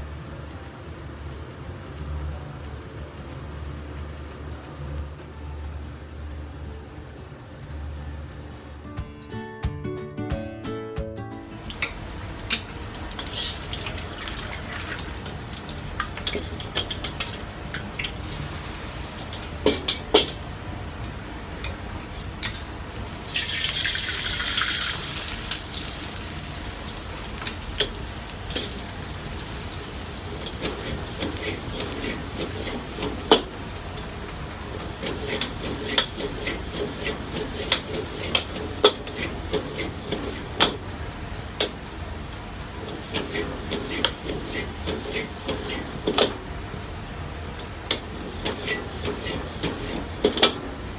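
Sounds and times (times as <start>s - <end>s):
gas burner rushing: 11.6s - 50.9s
noodles sizzling in a wok: 11.6s - 50.9s
ladle scraping a wok: 30.3s - 33.5s, 34.6s - 40.7s, 42.8s - 46.4s, 48.1s - 50.5s.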